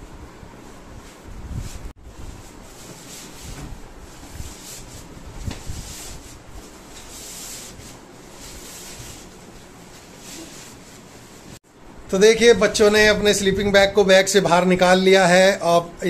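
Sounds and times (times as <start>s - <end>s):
fabric rustling and rubbing: 0.5s - 11.6s.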